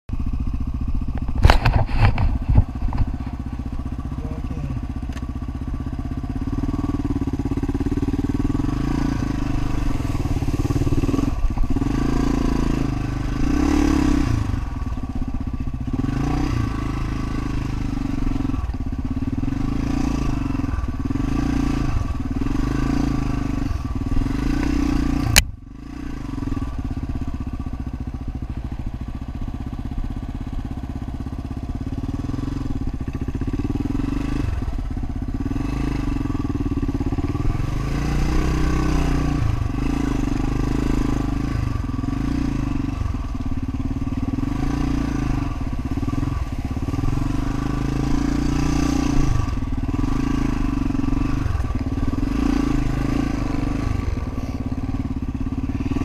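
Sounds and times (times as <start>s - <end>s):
motorcycle engine revving: 0.1s - 56.0s.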